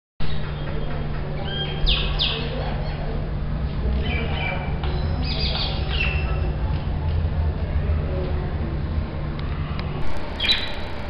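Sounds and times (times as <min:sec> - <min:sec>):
steady low hum: 0:00.2 - 0:11.0
mynas calling: 0:10.1 - 0:11.0.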